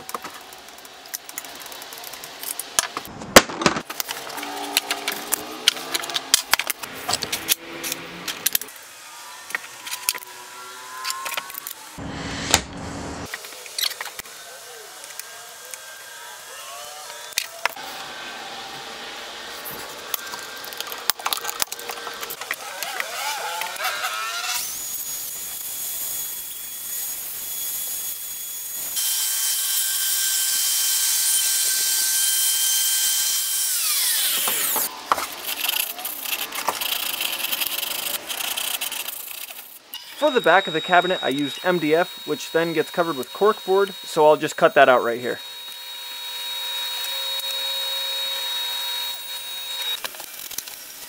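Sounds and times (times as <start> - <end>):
router whining: 4.0 - 12.1, 13.2 - 51.0
sandpaper rubbing wood: 34.0 - 44.9.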